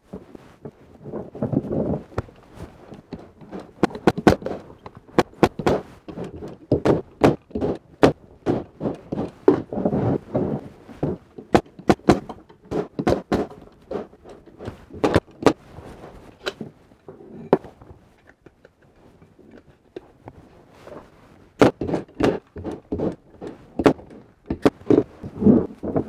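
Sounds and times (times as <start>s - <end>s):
wooden boxes knocking: 1.4s - 15.6s, 21.6s - 26.0s.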